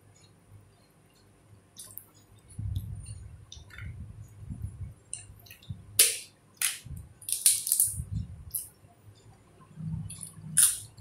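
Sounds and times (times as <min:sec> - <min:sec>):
papadam crackling and snapping: 0:05.1 - 0:08.7, 0:10.1 - 0:11.0.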